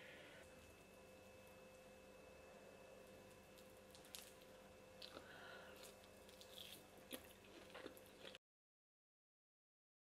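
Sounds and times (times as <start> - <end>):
faint steady hum: 0.0 - 8.4
person chewing: 3.9 - 8.4.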